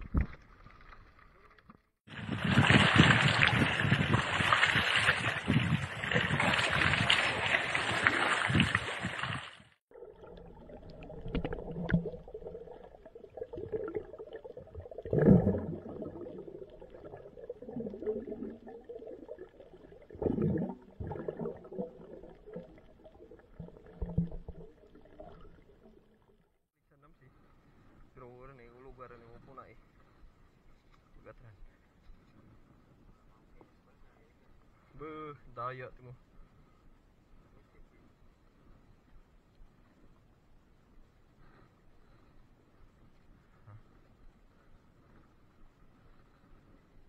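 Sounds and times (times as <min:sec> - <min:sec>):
water rushing and splashing: 0:02.1 - 0:26.0
water gurgling: 0:02.1 - 0:26.5.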